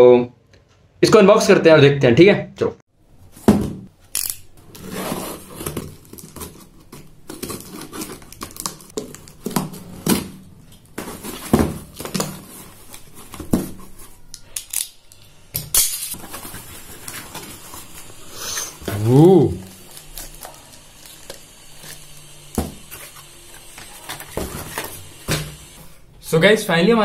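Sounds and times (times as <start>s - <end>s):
packing tape ripping: 4.1s - 25.8s
cardboard and plastic rustling: 4.6s - 14.6s, 16.1s - 26.0s.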